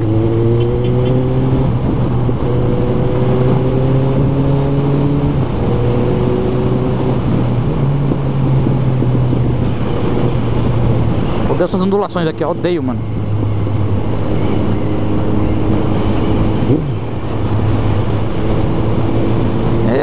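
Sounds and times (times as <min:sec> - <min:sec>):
motorcycle engine running: 0:00.0 - 0:02.9
wind rushing over microphone: 0:00.0 - 0:20.0.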